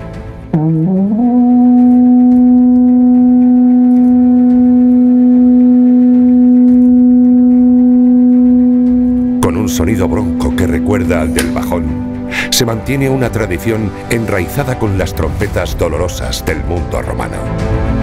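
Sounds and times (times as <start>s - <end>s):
long horn blown: 0.4s - 12.3s.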